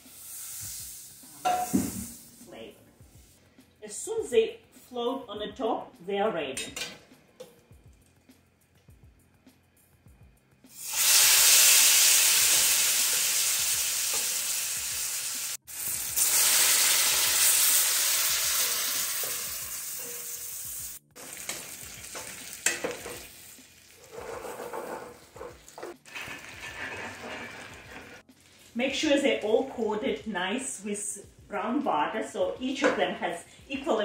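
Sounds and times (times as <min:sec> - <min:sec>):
dumplings sizzling in butter: 0:00.0 - 0:02.4, 0:10.7 - 0:29.9.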